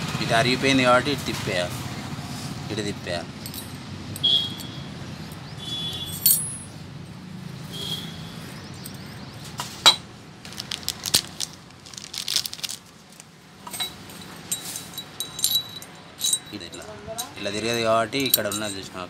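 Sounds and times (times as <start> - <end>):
metal parts clinking: 3.4 - 6.8, 10.5 - 12.9, 13.6 - 19.0.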